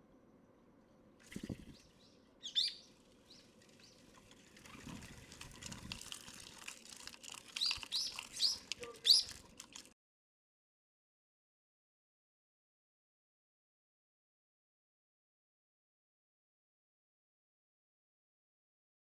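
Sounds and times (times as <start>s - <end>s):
wing flutters: 1.2s - 10.0s
sparrows chirping: 1.4s - 4.1s, 7.6s - 9.4s
birds pecking: 2.5s - 10.0s.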